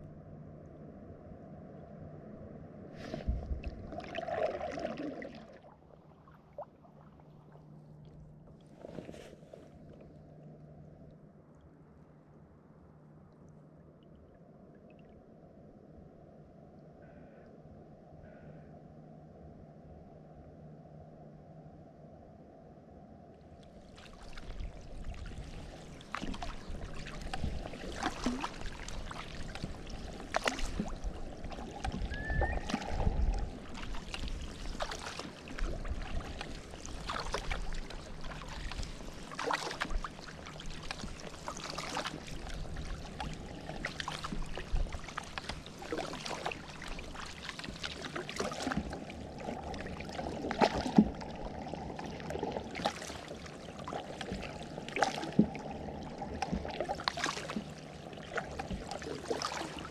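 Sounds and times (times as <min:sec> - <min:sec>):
paddle splashing water: 0:02.9 - 0:10.3, 0:23.7 - 0:59.9.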